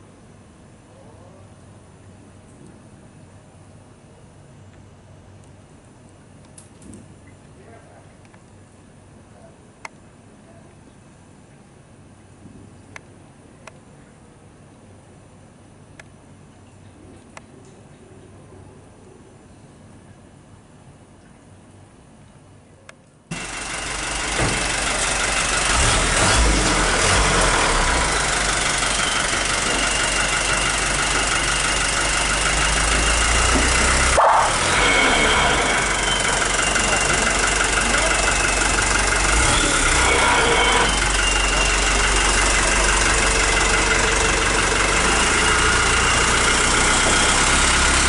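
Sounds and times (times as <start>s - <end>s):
truck engine idling: 23.3s - 48.0s
indistinct voices: 24.2s - 48.0s.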